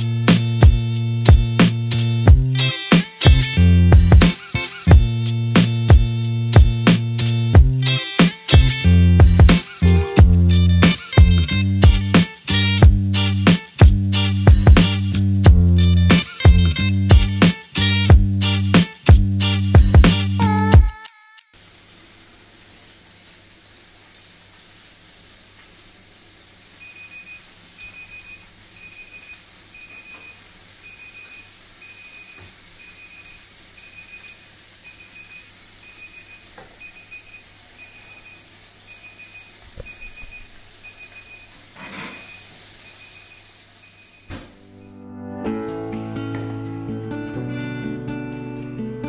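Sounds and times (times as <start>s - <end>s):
steady hiss: 21.6s - 45.0s.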